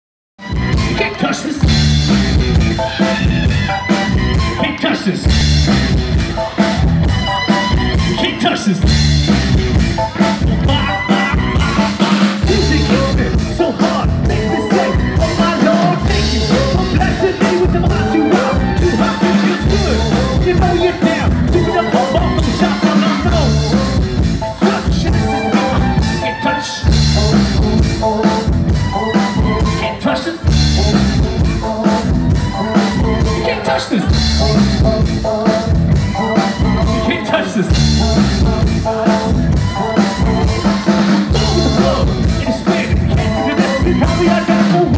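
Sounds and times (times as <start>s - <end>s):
drum kit beat: 0.4s - 44.9s
electric bass: 0.4s - 44.9s.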